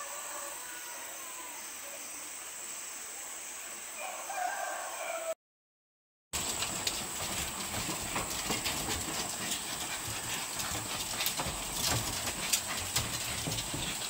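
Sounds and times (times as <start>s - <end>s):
dog paws tapping on bamboo floor: 6.4s - 14.0s.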